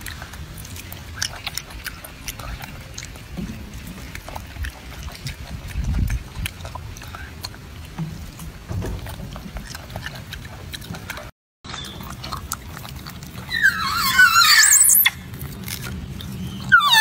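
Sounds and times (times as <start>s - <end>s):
low background hum: 0.0s - 17.0s
monkey squealing call: 13.5s - 15.2s, 16.5s - 17.0s.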